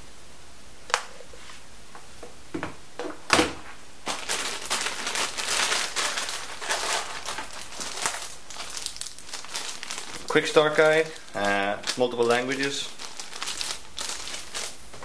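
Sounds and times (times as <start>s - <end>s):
plastic bag crinkling: 4.0s - 15.0s.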